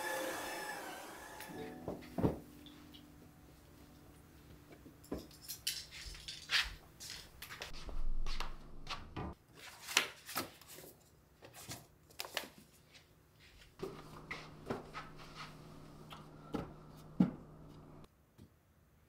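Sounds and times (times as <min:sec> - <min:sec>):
paper rustling: 0:09.5 - 0:12.9
steady low hum: 0:13.8 - 0:18.1.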